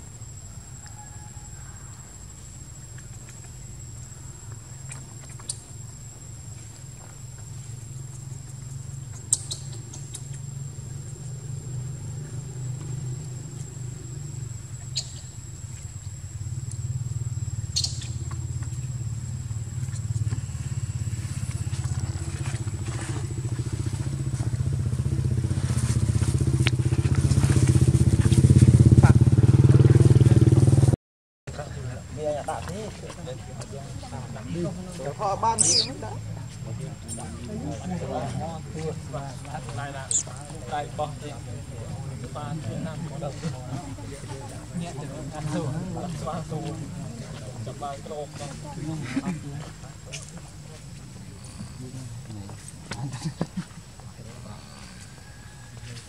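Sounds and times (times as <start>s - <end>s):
low engine rumble: 0.0s - 56.0s.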